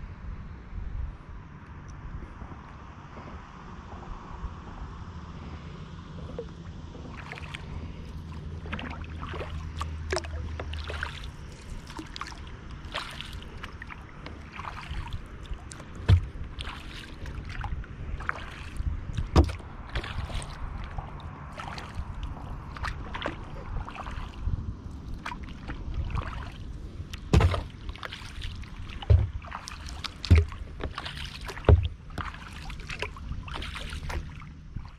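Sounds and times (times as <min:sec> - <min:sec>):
steady low hum: 0:00.0 - 0:34.9
paddle splashes and drips: 0:06.2 - 0:34.9
low thumps: 0:27.2 - 0:27.8, 0:29.0 - 0:29.5, 0:30.1 - 0:32.4.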